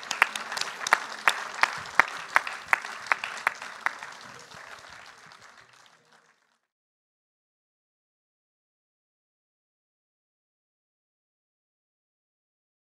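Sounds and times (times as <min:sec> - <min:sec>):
person clapping loudly: 0:00.0 - 0:06.5
audience applauding: 0:00.0 - 0:06.7.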